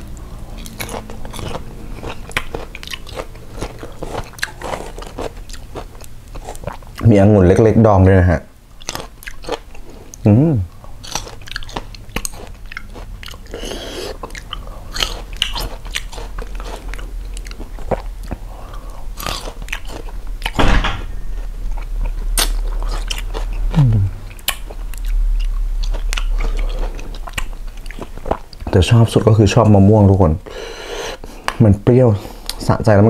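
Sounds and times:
wet crunching chewing: 0:00.0 - 0:07.1, 0:08.8 - 0:10.2, 0:10.9 - 0:20.6, 0:21.2 - 0:28.8
person humming: 0:23.7 - 0:24.3.

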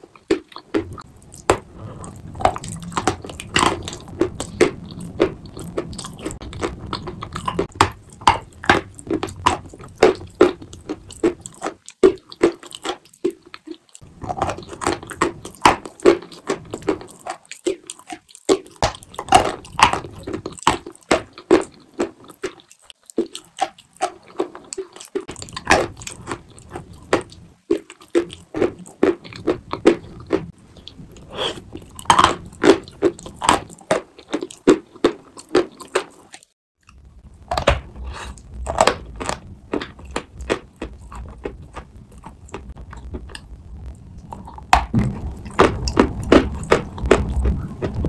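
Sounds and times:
chalk crunching being chewed: 0:00.0 - 0:48.0
low rumble: 0:00.8 - 0:11.2, 0:36.9 - 0:48.0.

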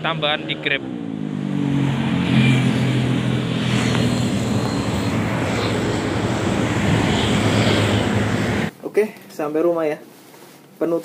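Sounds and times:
wind and road noise: 0:00.0 - 0:08.7
scooter engine pulling away: 0:00.3 - 0:08.7.

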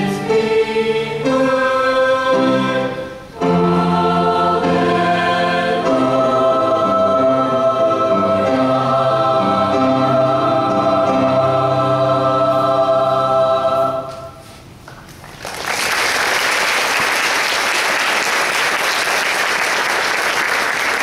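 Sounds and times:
choir holding a chord: 0:00.0 - 0:14.5
audience applause: 0:15.2 - 0:21.0.

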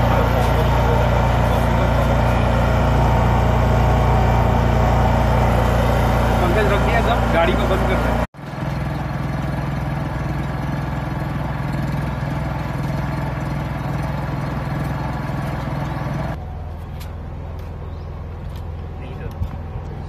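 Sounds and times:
machine motor humming: 0:00.0 - 0:16.4.

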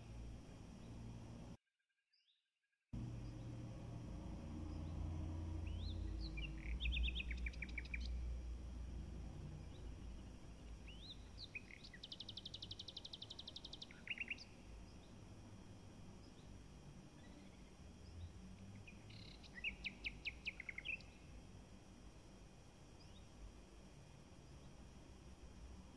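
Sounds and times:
songbird chirping and trilling: 0:03.0 - 0:08.5, 0:09.4 - 0:15.3, 0:16.1 - 0:21.4
steady low rumble: 0:03.0 - 0:12.2.

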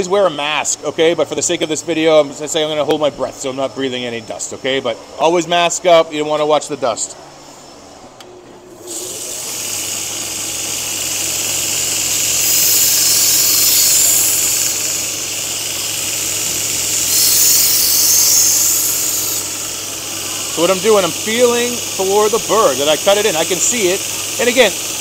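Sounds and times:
motor hum: 0:08.0 - 0:25.0
belt grinder hissing: 0:08.8 - 0:25.0.

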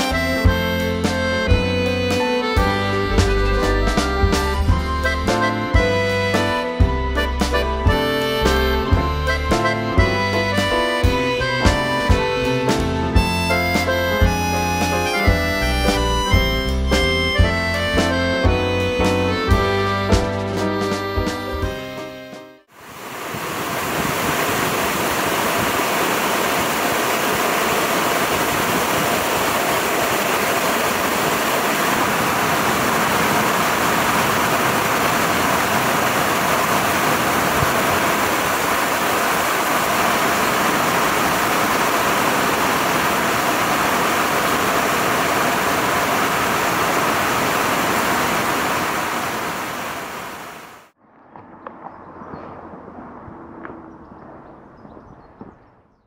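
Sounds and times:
loud rushing noise: 0:22.7 - 0:51.0.

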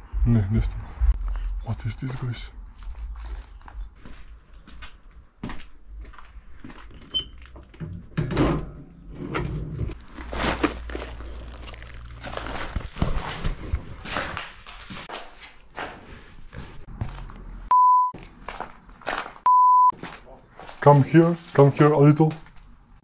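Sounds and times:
footsteps on rubble: 0:01.1 - 0:07.7, 0:09.9 - 0:17.6, 0:18.2 - 0:21.0.

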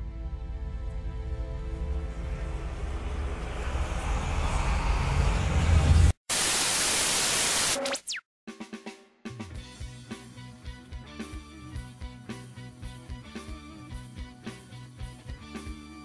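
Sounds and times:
intro music: 0:00.1 - 0:04.8
tv static hiss: 0:06.3 - 0:08.2
music with drum strikes: 0:08.5 - 0:10.4.

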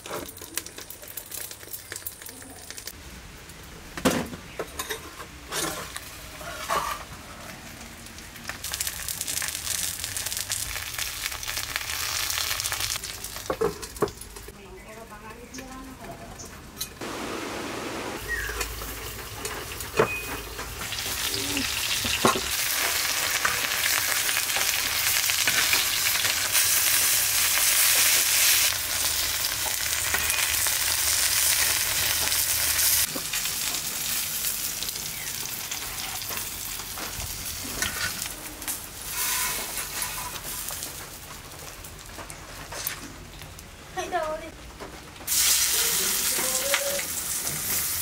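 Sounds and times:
fish parcels sizzling on a pan: 0:05.6 - 0:14.5, 0:17.1 - 0:42.2, 0:45.3 - 0:48.0.

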